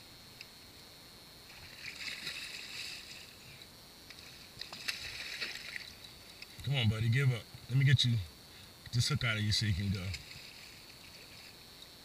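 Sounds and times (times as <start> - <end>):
fish splashing water: 1.6 - 3.4, 4.4 - 6.3.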